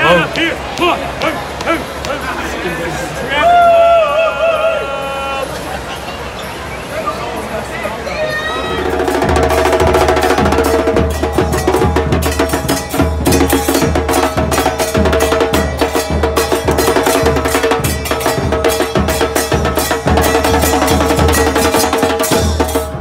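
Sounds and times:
pounding drumbeat: 0.0s - 2.4s, 8.8s - 23.0s
sharp percussion strikes: 0.0s - 2.6s, 8.7s - 23.0s.

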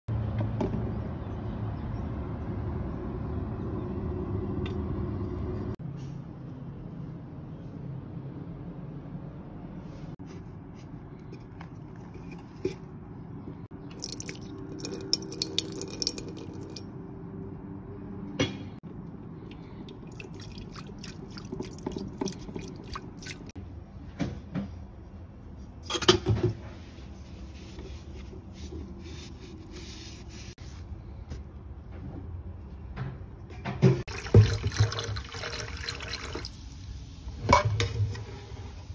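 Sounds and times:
water sloshing in a kettle: 19.4s - 23.6s, 33.8s - 36.6s
kettle clinking and knocking: 33.9s - 36.0s.

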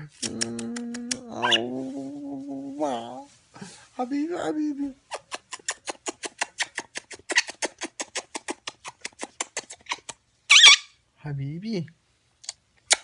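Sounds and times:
parrot squawk: 1.4s - 1.7s, 10.5s - 11.0s.

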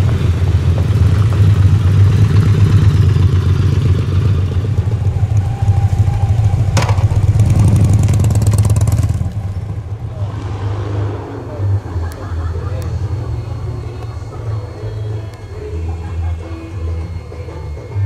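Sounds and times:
motorcycle engines passing slowly: 0.0s - 18.0s.

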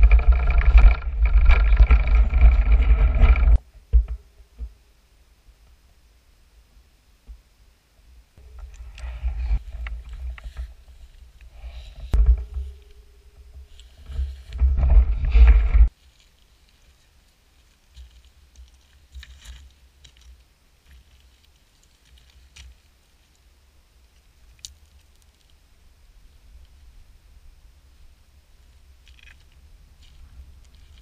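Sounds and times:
rough rumbling and knocking: 0.0s - 4.8s, 8.4s - 16.0s.

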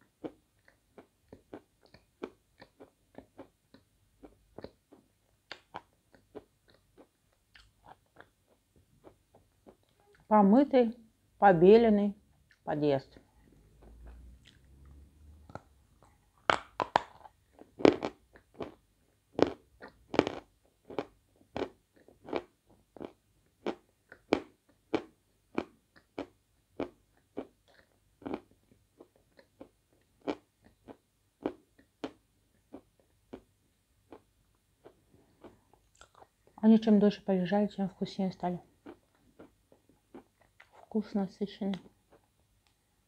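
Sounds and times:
chalk crunching while chewed: 38.8s - 40.8s.

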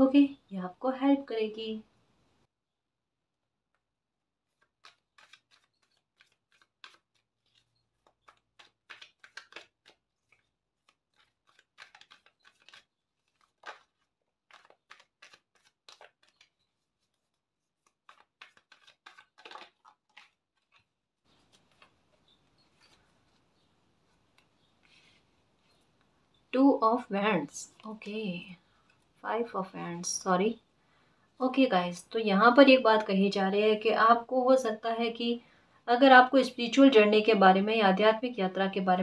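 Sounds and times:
cards being shuffled: 4.4s - 25.9s.

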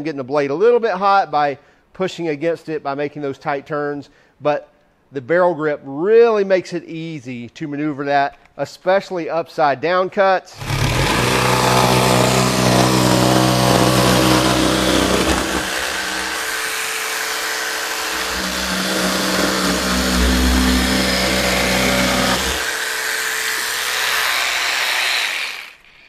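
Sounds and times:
jigsaw cutting plywood: 10.6s - 26.0s.

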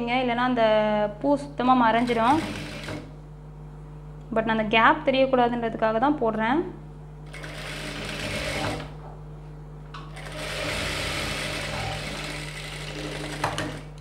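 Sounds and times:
industrial sewing machine stitching: 2.0s - 3.1s, 7.3s - 9.0s, 10.1s - 14.0s.

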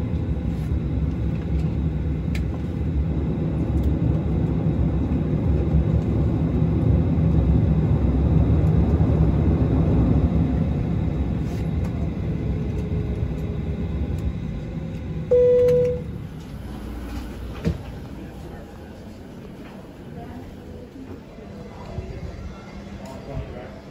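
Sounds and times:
jet engines winding down: 0.0s - 19.3s
short loud tone: 15.3s - 16.1s.

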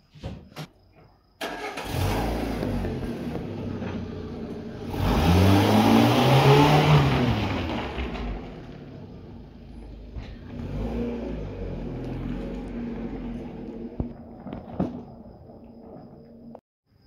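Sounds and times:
car engine revving: 1.4s - 14.6s.

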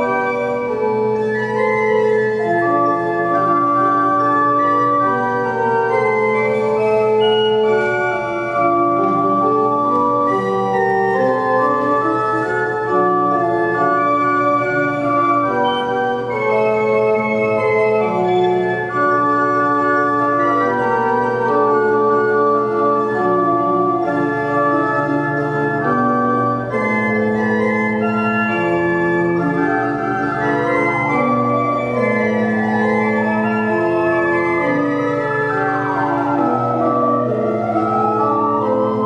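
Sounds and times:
pipe organ chords: 0.0s - 39.0s.

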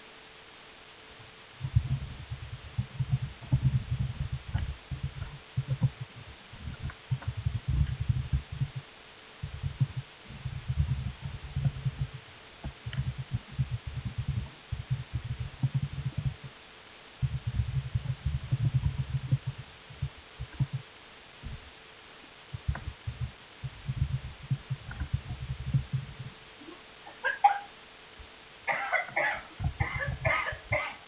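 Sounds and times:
faint steady hum: 0.0s - 31.0s
muffled low thumps: 1.2s - 26.8s, 29.0s - 30.9s.

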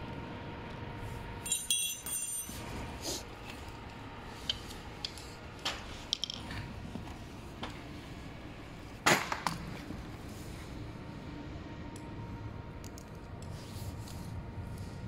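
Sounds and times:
metal tools clinking: 1.4s - 2.7s.

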